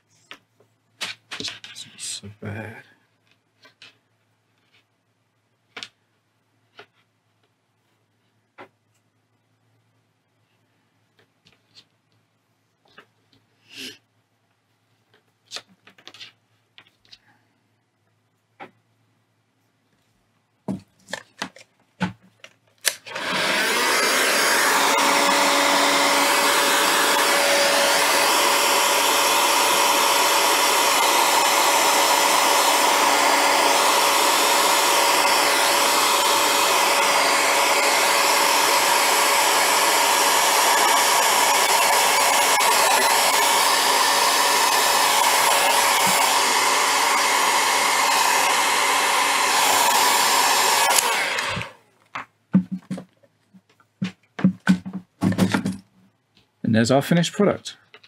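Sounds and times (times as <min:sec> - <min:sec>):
heat gun blowing: 0:22.8 - 0:51.8.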